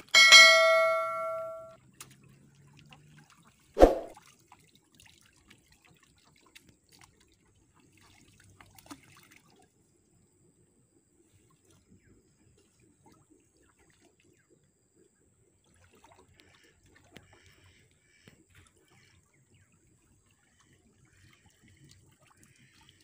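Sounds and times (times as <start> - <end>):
pond water sloshing and trickling: 0.1 - 23.0
water drips and splashes: 1.8 - 10.0, 15.6 - 17.6, 18.2 - 23.0.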